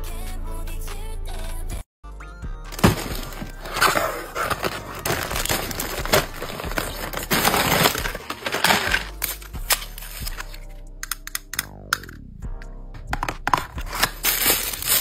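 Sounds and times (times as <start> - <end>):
plastic mailer bag crinkling: 2.7 - 10.6, 13.9 - 15.0
plastic package handled: 2.7 - 10.6, 13.4 - 15.0.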